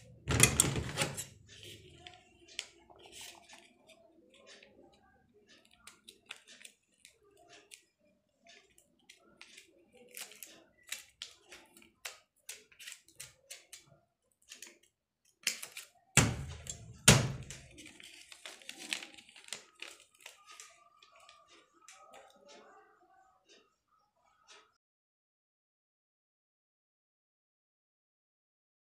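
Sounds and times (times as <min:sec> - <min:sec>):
paper rustling: 0:00.3 - 0:04.6, 0:15.5 - 0:21.5
scissors snipping paper: 0:00.5 - 0:07.9, 0:08.5 - 0:22.4.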